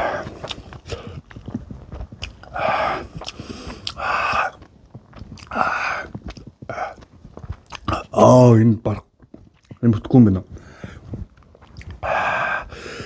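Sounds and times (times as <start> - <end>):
breathy mouth sounds: 0.0 - 8.2, 10.4 - 13.0
wet chewing: 0.0 - 8.2, 9.0 - 9.9, 10.5 - 13.0.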